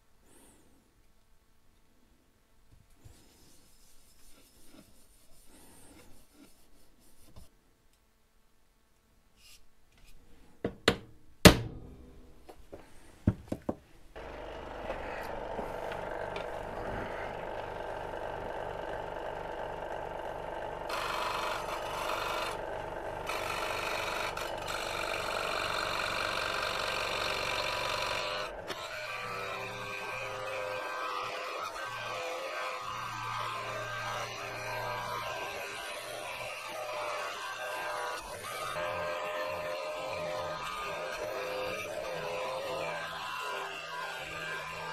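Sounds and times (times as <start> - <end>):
scroll saw cutting metal: 14.2 - 18.2, 20.9 - 44.9.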